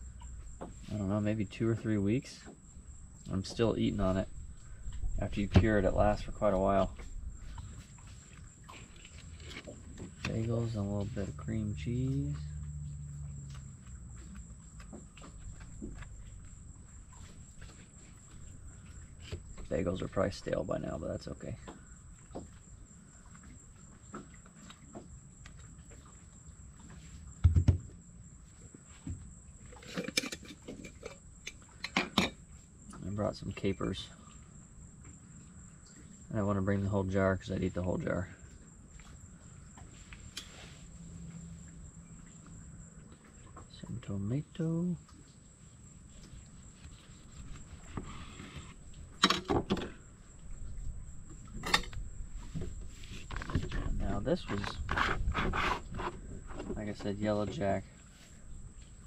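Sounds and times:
faint low rumble: 0.0 - 21.7
dull thumps of containers set down: 27.4 - 27.9.

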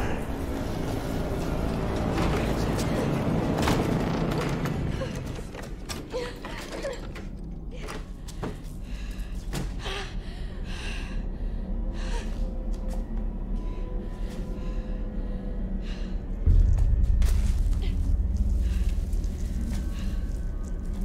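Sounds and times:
low rumble: 10.2 - 21.0.

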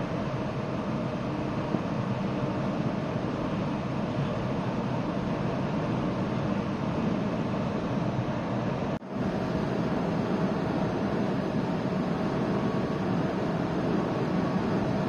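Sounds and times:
ship low mechanical hum: 0.0 - 15.0.

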